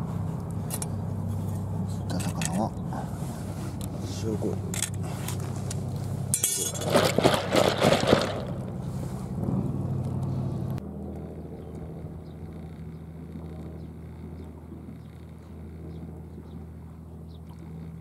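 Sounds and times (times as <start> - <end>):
engine idling hum: 0.0 - 18.0
loud rustling and crackling: 5.0 - 9.3.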